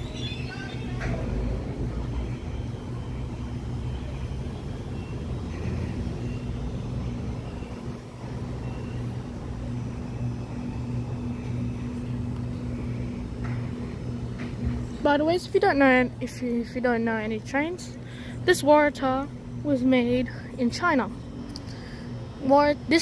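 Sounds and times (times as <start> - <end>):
electric train humming: 0.0 - 23.0.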